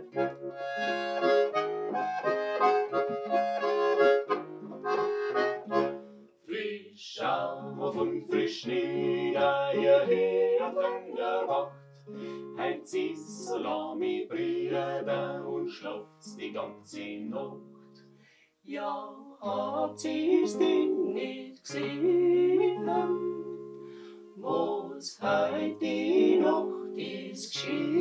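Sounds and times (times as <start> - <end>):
button accordion: 0.0 - 6.0
acoustic guitar: 0.0 - 6.5, 7.2 - 18.5, 19.4 - 28.0
vocal group singing: 6.5 - 17.7, 18.7 - 23.7, 24.4 - 28.0.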